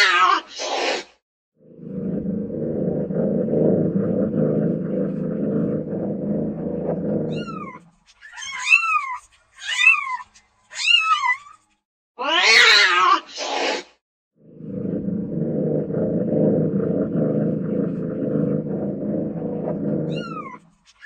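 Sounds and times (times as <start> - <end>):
cat hissing: 0.0 - 1.2
cat growling: 1.6 - 7.8, 14.6 - 20.7
cat yowling: 7.3 - 11.6, 20.1 - 20.6.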